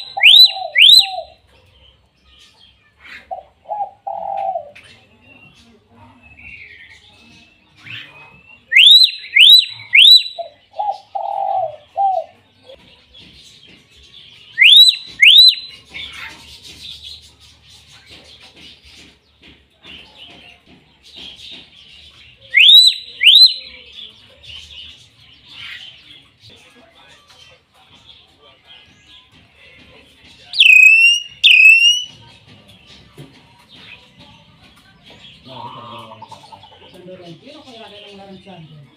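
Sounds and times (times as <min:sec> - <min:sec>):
low cooing bird call: 0:00.0 - 0:01.4, 0:03.1 - 0:05.0, 0:07.8 - 0:12.8, 0:35.4 - 0:36.9
faint bird chirping: 0:21.2 - 0:38.9.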